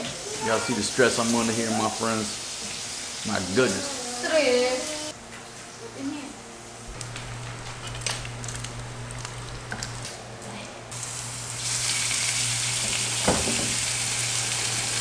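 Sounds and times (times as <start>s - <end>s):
bacon sizzling in a pan: 0.0s - 5.2s, 11.0s - 15.0s
knock: 13.2s - 13.8s.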